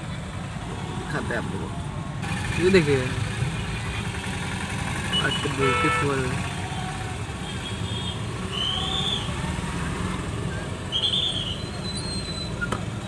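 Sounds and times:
car and road rumble: 0.0s - 13.0s
high-pitched whistle blasts: 8.5s - 9.3s, 10.9s - 12.6s.

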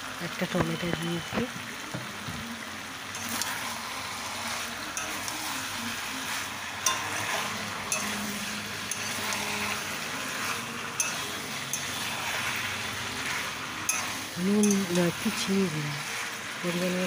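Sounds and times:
curry sizzling in a pan: 0.0s - 17.0s
metal spatula clicking on pan: 5.0s - 5.4s.

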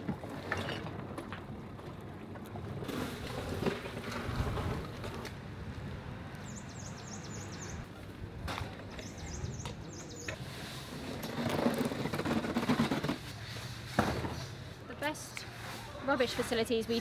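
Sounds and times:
low wind rumble: 0.9s - 10.2s
bird chirping: 6.4s - 7.8s, 8.9s - 10.4s.

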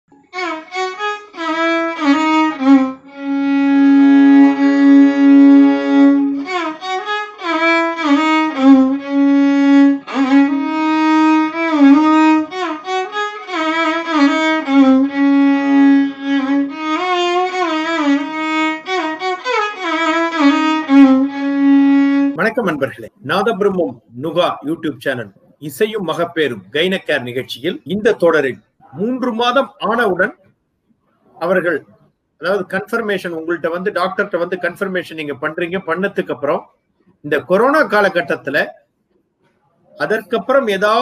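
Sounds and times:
bowed string melody: 0.1s - 23.0s.

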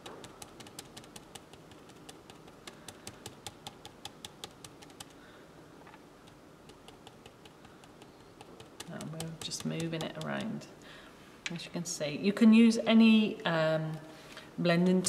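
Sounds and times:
sponge tapping on stencil: 0.0s - 5.1s, 6.3s - 10.6s.

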